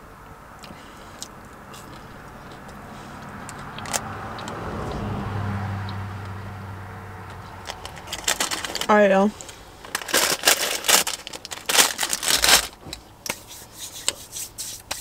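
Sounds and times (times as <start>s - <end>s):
vehicle engine passing: 0.4s - 9.8s.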